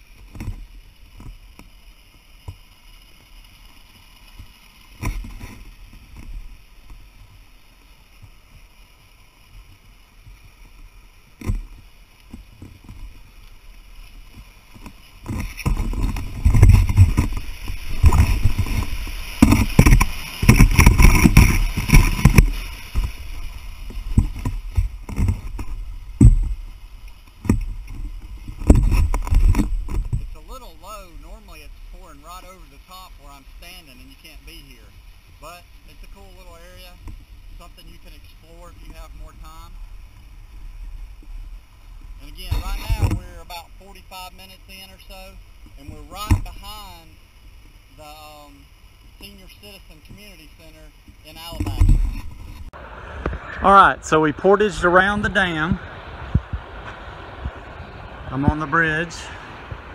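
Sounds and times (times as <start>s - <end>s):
plastic kayak knocking and dragging: 0.2s - 1.7s, 4.4s - 7.0s, 11.3s - 13.3s, 14.2s - 32.6s, 36.2s - 40.2s, 42.2s - 47.0s, 49.2s - 53.6s.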